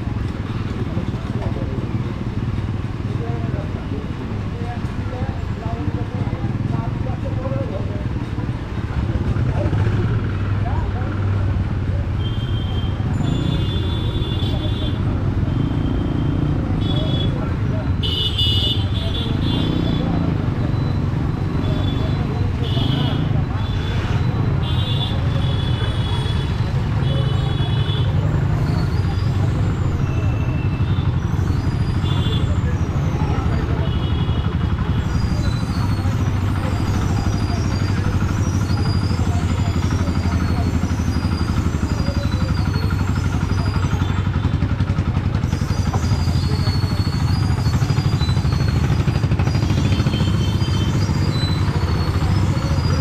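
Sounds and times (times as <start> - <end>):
traffic engine rumble: 0.0 - 53.0
faint voices: 12.9 - 53.0.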